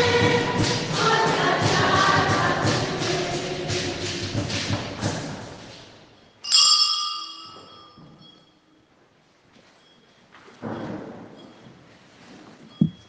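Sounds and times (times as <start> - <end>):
choral singing with beat: 0.0 - 5.9
small bell ringing: 6.3 - 8.8.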